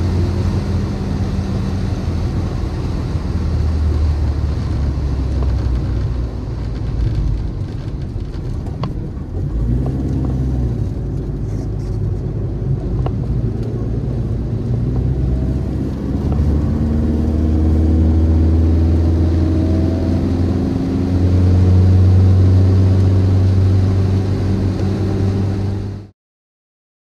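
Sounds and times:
car engine while driving: 0.0s - 26.1s
road noise: 0.0s - 26.1s.

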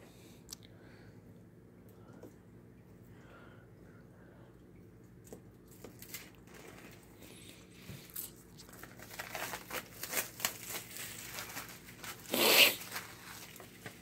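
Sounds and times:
plastic shrink-wrap crinkling: 5.6s - 14.0s
plastic wrap tearing: 5.8s - 7.1s, 8.1s - 14.0s.

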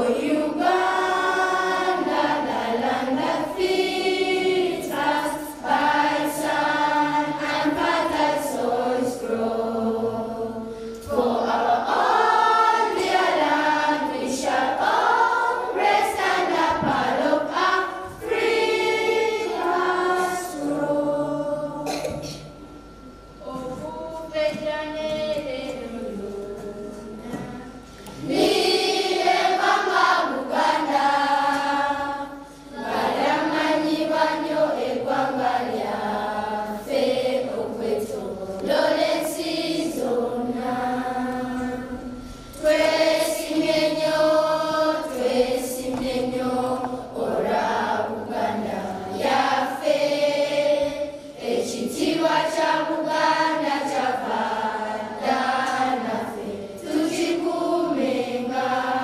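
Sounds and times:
children singing in chorus: 0.0s - 59.0s.

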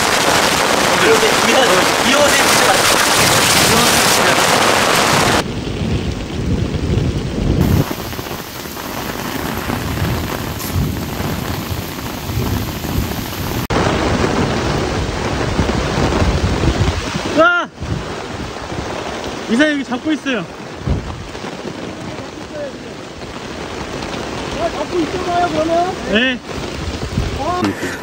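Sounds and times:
low thunder rumbling: 0.0s - 19.2s, 20.5s - 22.5s
heavy rain pouring: 0.0s - 28.0s.

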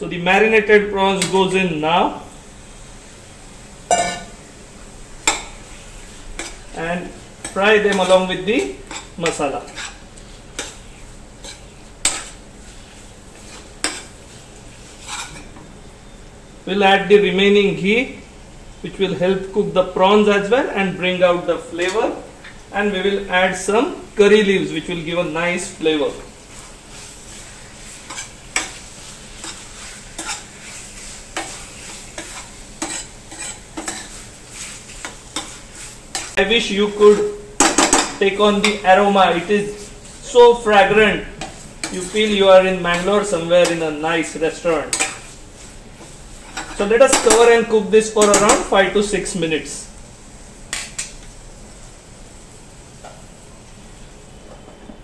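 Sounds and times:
faint sizzle of frying: 0.0s - 55.0s
spatula scraping a steel pan: 7.4s - 10.0s, 26.9s - 36.4s.

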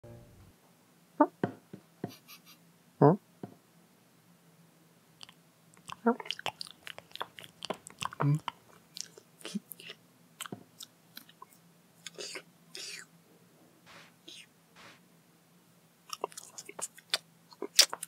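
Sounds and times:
rapid chewing and smacking: 5.2s - 13.0s, 16.1s - 18.0s.

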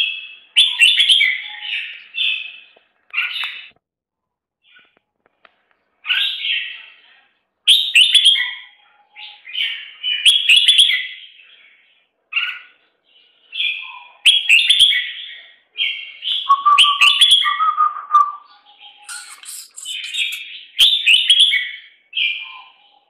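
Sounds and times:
short lower bird call: 16.5s - 20.5s
nestlings chirping shrilly: 16.5s - 20.6s.

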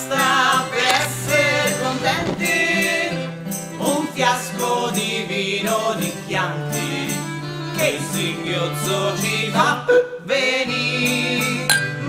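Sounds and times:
bass accompaniment: 0.0s - 4.0s.

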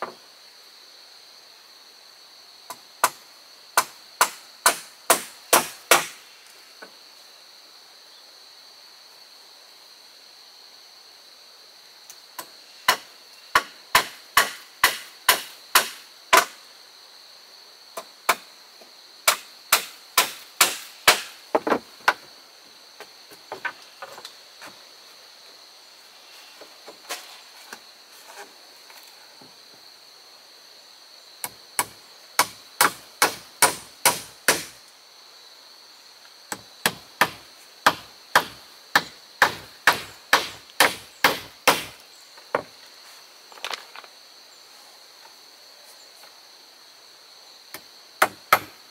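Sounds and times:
hand tool striking wood: 3.8s - 6.2s, 12.4s - 16.6s, 19.2s - 22.2s, 31.4s - 34.8s, 36.5s - 42.7s, 47.7s - 48.8s.

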